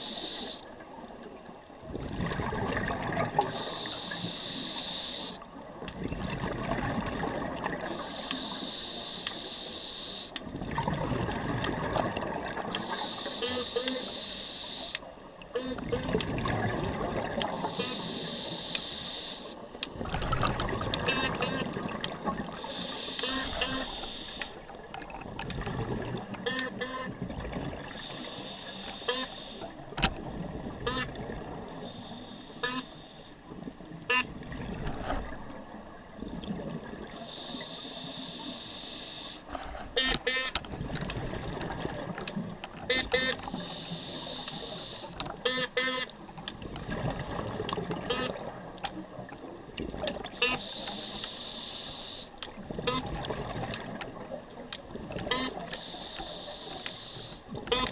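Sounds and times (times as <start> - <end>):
diver breathing through regulator: 0.0 - 0.6, 3.4 - 5.4, 7.9 - 10.4, 12.8 - 15.1, 17.5 - 19.6, 22.6 - 24.6, 27.8 - 29.8, 37.1 - 40.0, 43.4 - 45.2, 50.4 - 52.4, 55.7 - 57.5
gurgling exhaled bubbles: 1.8 - 3.6, 6.0 - 7.9, 10.5 - 12.8, 15.8 - 17.8, 20.0 - 22.7, 25.0 - 26.4
clicks and crackles: 24.4 - 26.8.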